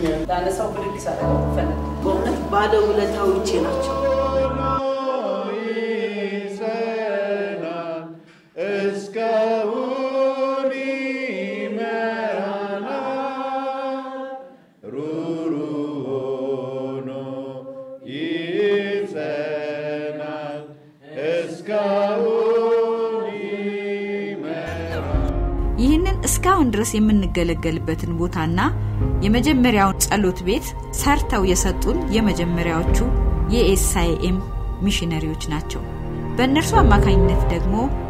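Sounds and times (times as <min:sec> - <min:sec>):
choir singing chant-like song: 0:00.0 - 0:25.8, 0:30.0 - 0:38.0.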